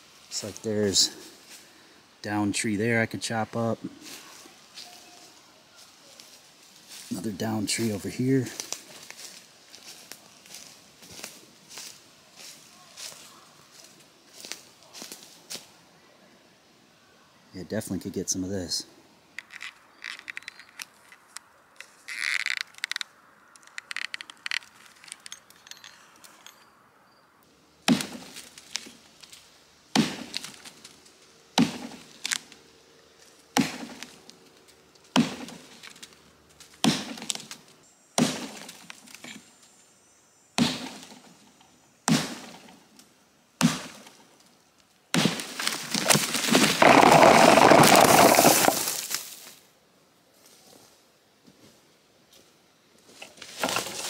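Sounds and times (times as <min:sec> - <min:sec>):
axe chopping wood: 0:27.9 - 0:28.4, 0:29.9 - 0:30.6, 0:31.6 - 0:32.1, 0:33.6 - 0:34.2, 0:35.1 - 0:35.7, 0:36.8 - 0:37.5, 0:38.2 - 0:38.8, 0:40.6 - 0:41.1, 0:42.1 - 0:42.7, 0:43.6 - 0:44.1, 0:45.1 - 0:48.9
tree cracking and crashing: 0:27.9 - 0:32.6, 0:33.3 - 0:39.4, 0:45.1 - 0:49.6, 0:53.4 - 0:54.0.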